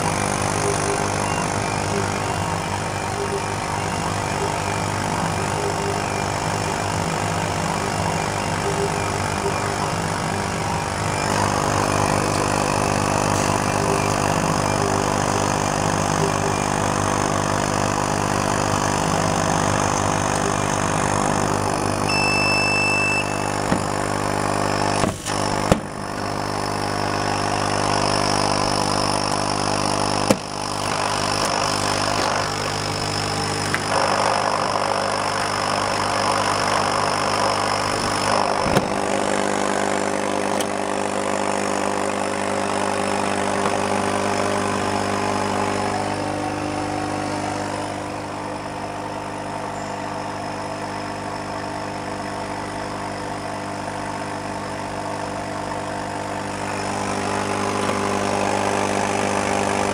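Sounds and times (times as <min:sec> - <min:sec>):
cutting head motors moving: 0:00.0 - 0:22.2, 0:22.9 - 0:50.5, 0:55.2 - 0:59.9
laser cutter machine hum: 0:00.0 - 0:59.9
short beep: 0:20.4 - 0:25.0.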